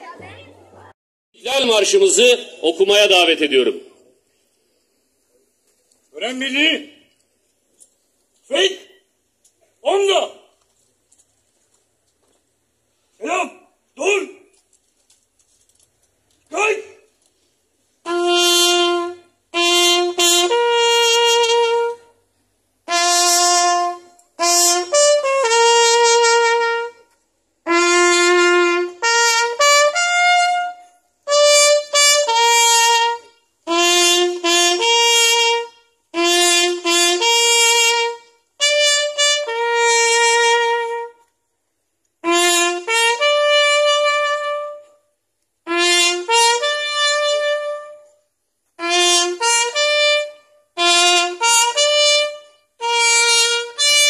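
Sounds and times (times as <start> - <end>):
solo trumpet call: 18.0 - 22.2, 22.8 - 41.4, 42.2 - 54.0.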